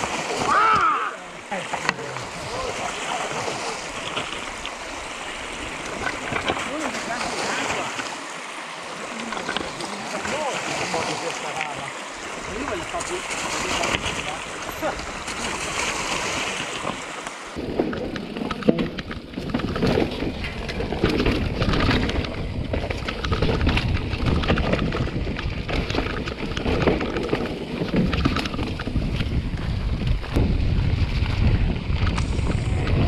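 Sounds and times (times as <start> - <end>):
wind buffeting microphone: 12.1 - 33.0
bike rattling and knocking: 17.6 - 33.0.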